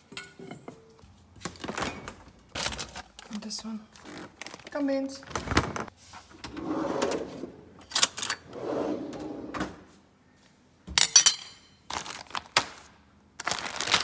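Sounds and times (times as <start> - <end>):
drawer sliding open and shut: 5.4 - 9.9
metal spoon clattering against bowls: 11.0 - 11.7.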